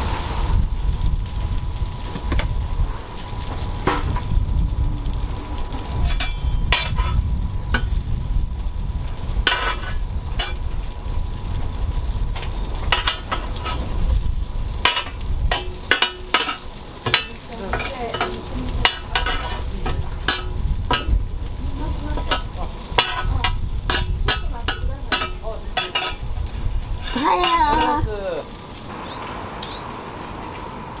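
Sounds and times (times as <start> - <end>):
food frying in oil: 0.0 - 29.0
steady low rumble: 0.0 - 29.0
utensils clicking against pans: 5.9 - 8.0, 9.5 - 10.7, 12.3 - 14.0, 14.8 - 26.3, 26.9 - 28.1.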